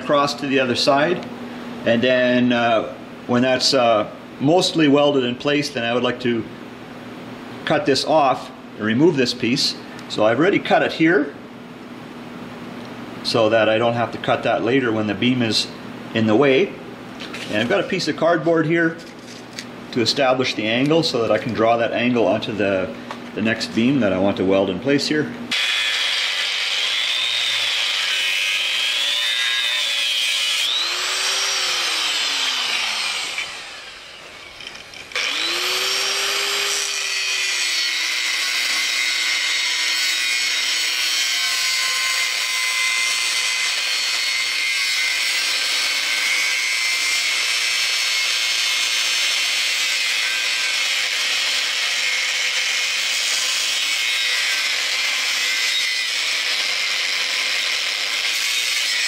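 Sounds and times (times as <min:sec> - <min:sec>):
angle grinder cutting metal: 0:25.5 - 0:59.0.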